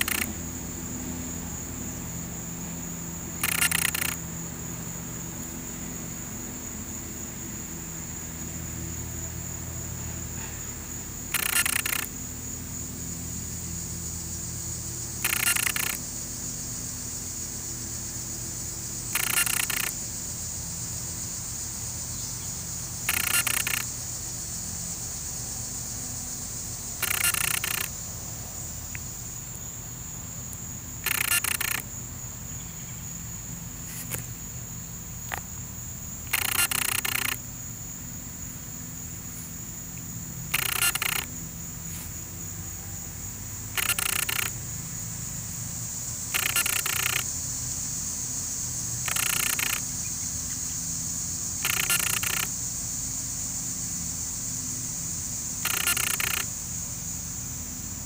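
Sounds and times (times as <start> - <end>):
short buzzing bursts: 0.0 - 6.8, 10.4 - 12.8, 14.8 - 20.4, 22.9 - 24.3, 27.0 - 28.0, 30.8 - 32.0, 36.2 - 37.5, 40.5 - 42.2, 43.7 - 44.6, 46.3 - 47.4, 48.9 - 50.2, 51.5 - 52.6, 55.6 - 56.6
high-pitched insect chorus: 0.0 - 58.0.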